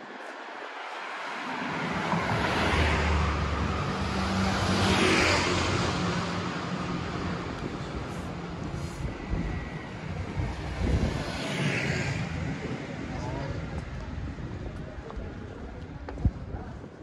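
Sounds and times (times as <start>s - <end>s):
car passing: 0.0s - 14.6s
motor scooter passing: 1.8s - 13.6s.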